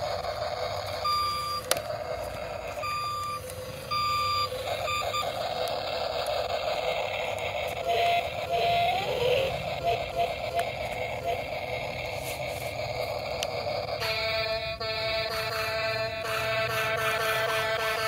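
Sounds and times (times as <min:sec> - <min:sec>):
toy motors and gears whirring: 0:00.0 - 0:18.0
short warning beeps: 0:02.8 - 0:05.4.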